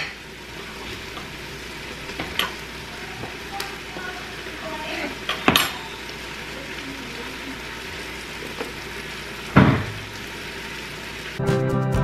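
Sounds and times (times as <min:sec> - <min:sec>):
vegetables sizzling: 0:00.0 - 0:12.0
knife knocking on cutting board: 0:09.6 - 0:10.0.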